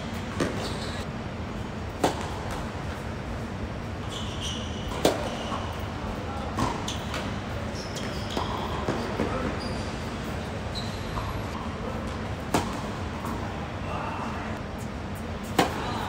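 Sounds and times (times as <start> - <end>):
tennis racket hitting ball: 2.0 - 2.7, 15.5 - 15.9.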